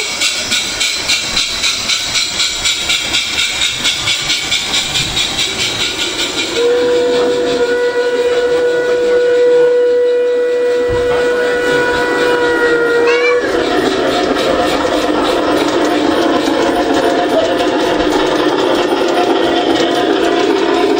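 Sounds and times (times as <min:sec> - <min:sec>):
model train wheels clicking: 0:00.0 - 0:20.9
steam whistle: 0:05.1 - 0:17.8.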